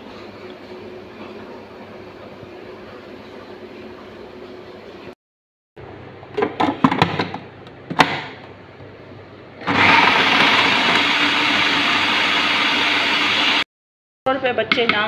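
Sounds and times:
food processor motor shredding: 0:09.6 - 0:13.6.

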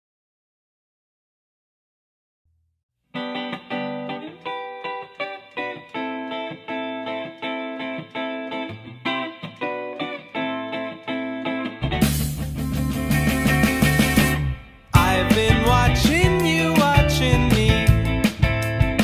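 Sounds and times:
guitar plucking notes: 0:03.2 - 0:19.0.

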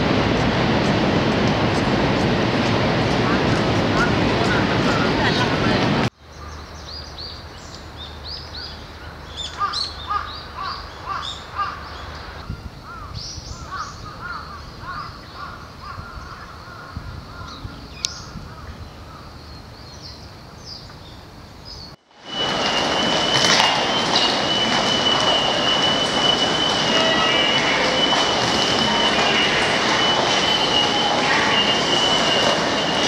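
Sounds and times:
birds calling: 0:22.5 - 0:33.0.

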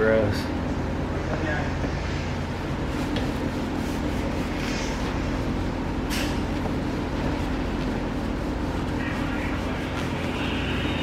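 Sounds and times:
low machine hum: 0:00.0 - 0:11.0
paper towel rubbing plastic: 0:02.7 - 0:11.0.

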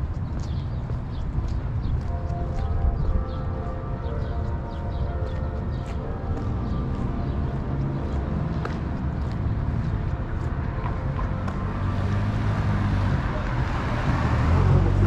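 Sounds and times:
traffic rumble: 0:00.0 - 0:15.0
vehicle approaching: 0:06.4 - 0:15.0.

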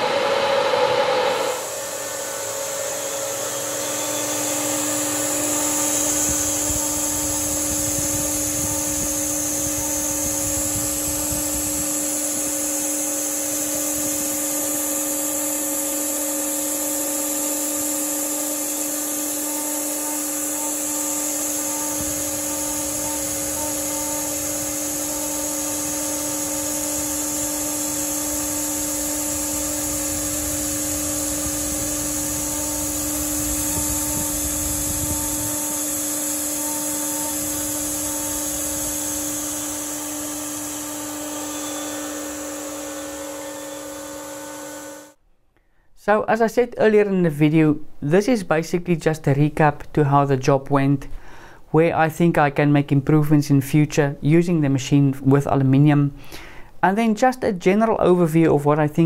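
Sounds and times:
router spindle high whine: 0:00.0 - 0:45.2.

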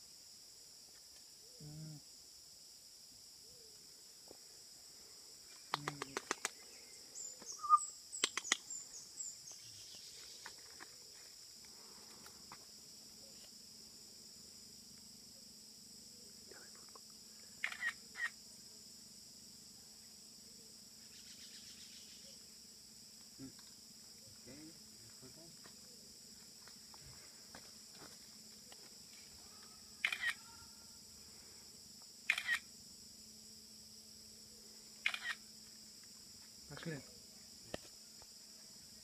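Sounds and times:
high-pitched insect drone: 0:03.4 - 0:39.0
sharp clicks: 0:05.6 - 0:06.6, 0:08.2 - 0:08.6, 0:32.3 - 0:32.6
short calls: 0:07.2 - 0:08.9.

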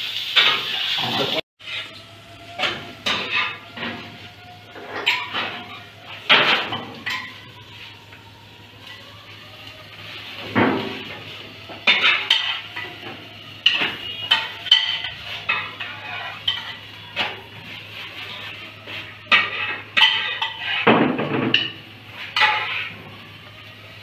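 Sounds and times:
metal tongs clinking on frying pan: 0:13.6 - 0:16.8, 0:19.3 - 0:20.8.

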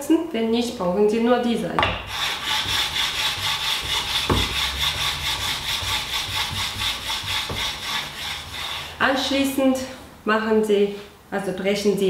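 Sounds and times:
stone grinding on stone: 0:02.0 - 0:08.9.

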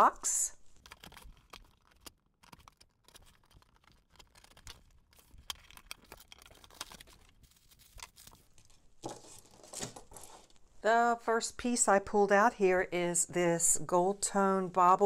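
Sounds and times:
hands opening cardboard box: 0:00.8 - 0:10.5
tissue paper rustling: 0:06.0 - 0:10.6.

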